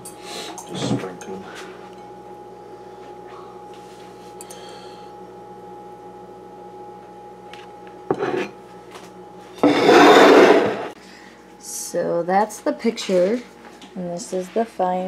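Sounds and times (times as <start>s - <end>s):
steady hum: 0.0s - 15.0s
plate scraping on counter: 8.1s - 8.6s, 9.5s - 11.0s.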